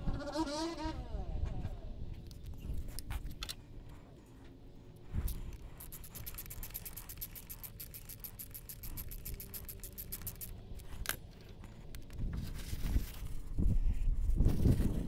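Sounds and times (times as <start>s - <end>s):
paintbrush scrubbing metal: 2.7s - 14.1s.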